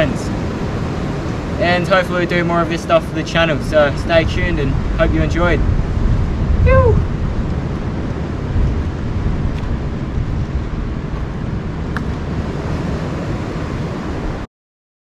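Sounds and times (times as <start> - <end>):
surf washing against rocks: 0.0 - 5.7
wind buffeting microphone: 0.0 - 14.4.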